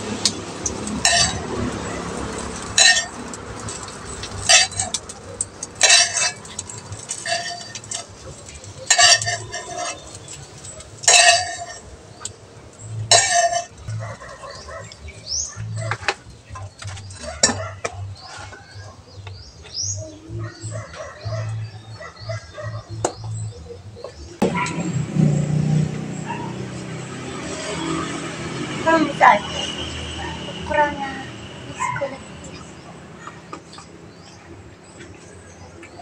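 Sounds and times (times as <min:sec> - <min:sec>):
metal spatula scraping a wok: 0:00.9 - 0:12.3, 0:13.1 - 0:13.9.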